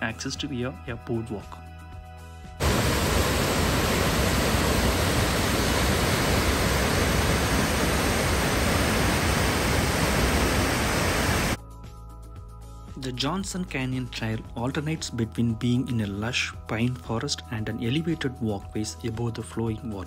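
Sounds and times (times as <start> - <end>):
waterfall rushing: 2.6 - 11.6.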